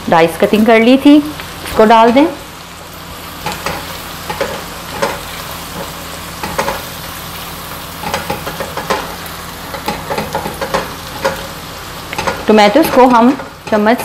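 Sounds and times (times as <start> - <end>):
food sizzling in hot oil: 0.0 - 14.0
spatula scraping wok: 3.2 - 7.2, 7.9 - 14.0.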